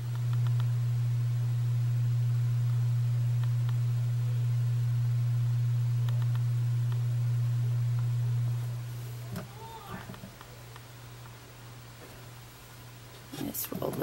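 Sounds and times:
low-pitched pure tone hum: 0.0 - 14.0
faint clicks: 0.1 - 0.7, 6.0 - 7.0.

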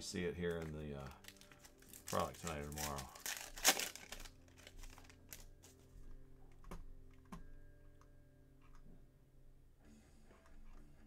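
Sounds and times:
quiet background music: 0.0 - 11.0
trading cards clicking and snapping: 0.5 - 5.4.

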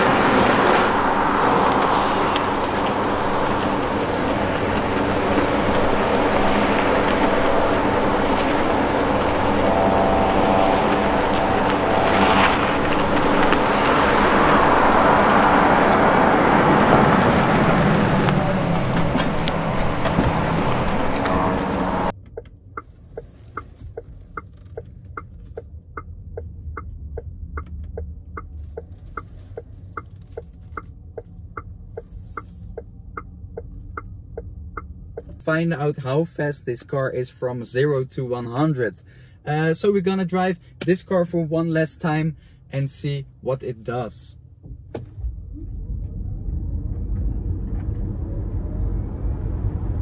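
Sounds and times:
car tyre and road noise: 0.0 - 50.0
turn signal ticking: 18.2 - 35.4.

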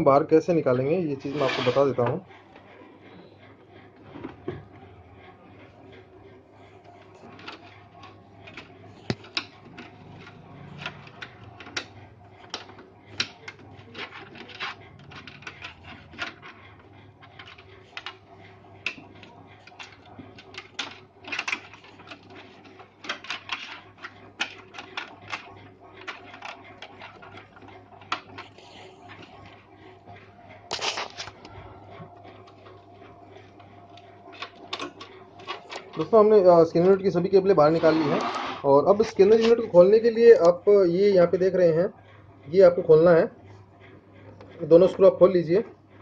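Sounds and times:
plastic clicks and rattles: 19.6 - 28.5.

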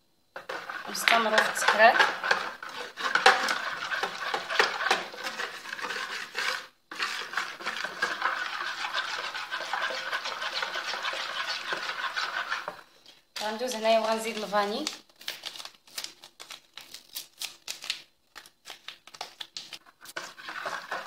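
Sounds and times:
whisk scraping plastic bowl: 0.4 - 12.9, 20.0 - 21.0.

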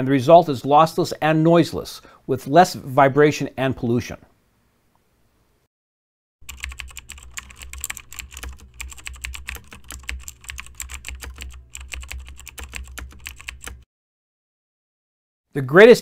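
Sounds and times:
keyboard typing: 6.4 - 13.9.

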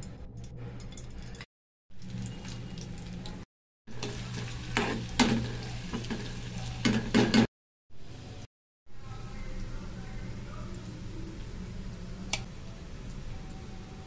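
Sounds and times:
onions sizzling in hot oil: 3.9 - 7.3.

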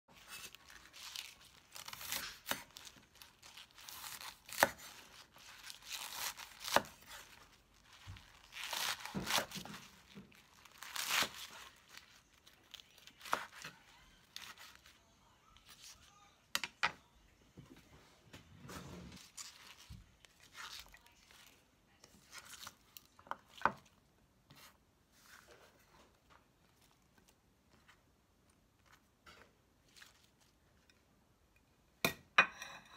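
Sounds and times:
leaf rustling: 0.1 - 13.6
cleaver chopping vegetable stems: 1.8 - 2.9, 3.9 - 5.0, 5.9 - 7.2, 8.6 - 9.8.

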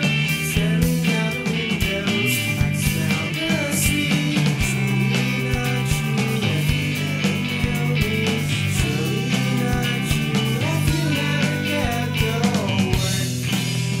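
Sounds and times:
rock music: 0.0 - 14.0.

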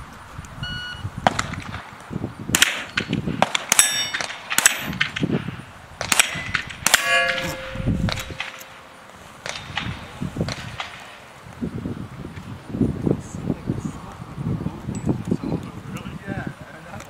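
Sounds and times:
steel targets clanging: 2.6 - 5.2, 6.1 - 10.0.

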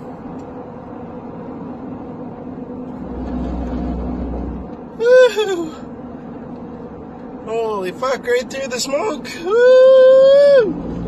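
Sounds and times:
low rumble: 0.0 - 7.5
car cabin road and engine noise: 0.0 - 11.0.

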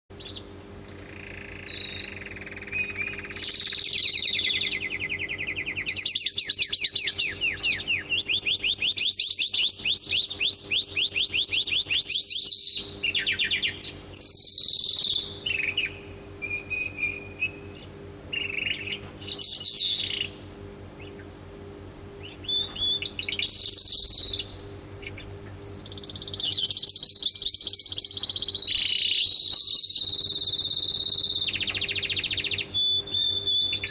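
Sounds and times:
lark singing trills: 0.1 - 21.4, 22.2 - 33.9
canary singing: 0.1 - 33.9.

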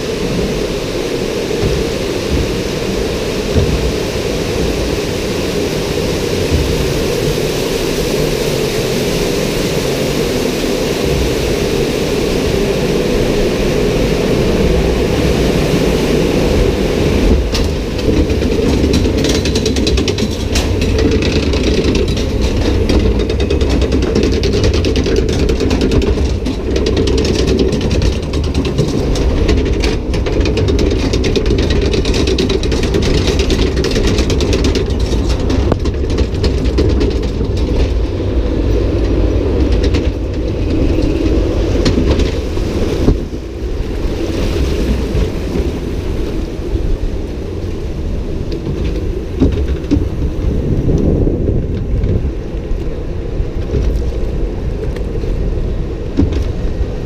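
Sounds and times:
ride machinery clattering: 0.0 - 7.4, 11.0 - 57.0
water rushing: 0.0 - 57.0.

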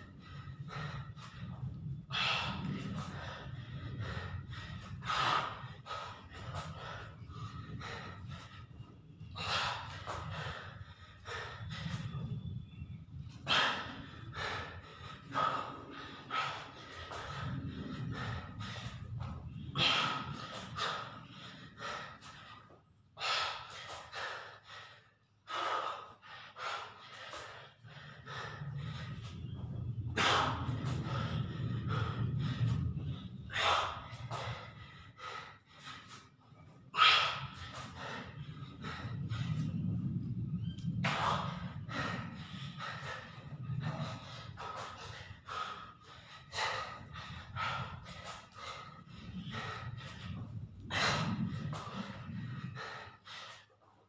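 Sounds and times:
man breathing hard and gasping: 0.0 - 39.8, 41.0 - 54.0
low steady hum: 26.9 - 53.3.

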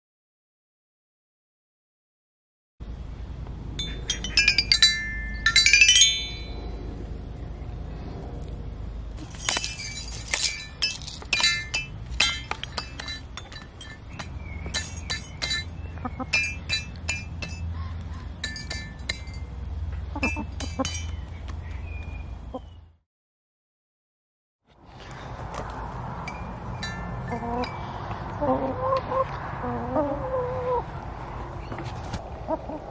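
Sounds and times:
low steady rumble: 2.8 - 19.9
toy xylophone notes: 3.8 - 6.7
hens pecking xylophone bars: 9.3 - 19.5.

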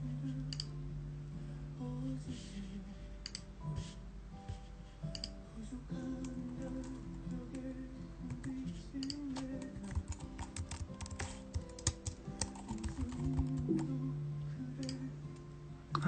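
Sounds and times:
soft song with held notes: 0.0 - 16.0.

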